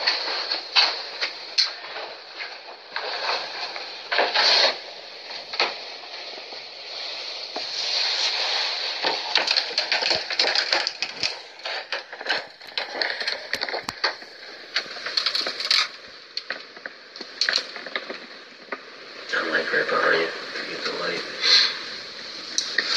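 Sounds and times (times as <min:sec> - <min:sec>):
snaps and cracks: 0:00.0 - 0:19.4, 0:22.5 - 0:22.9
steady hiss: 0:00.0 - 0:22.9
footsteps crunching over debris: 0:09.0 - 0:18.8.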